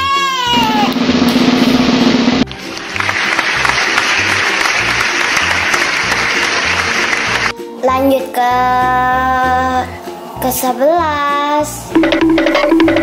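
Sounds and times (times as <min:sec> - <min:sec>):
background music with steady beat: 0:00.0 - 0:13.0
recorded applause: 0:02.4 - 0:07.5.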